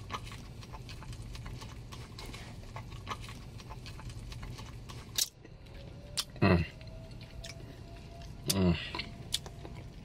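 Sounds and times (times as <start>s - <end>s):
mouth chewing wetly: 0.0s - 5.4s
low steady hum: 0.0s - 10.0s.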